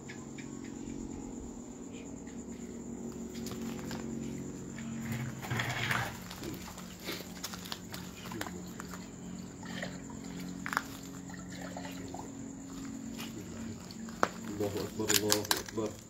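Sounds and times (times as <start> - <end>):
steady low hum: 0.0 - 16.0
water splashing in a bucket: 5.1 - 16.0.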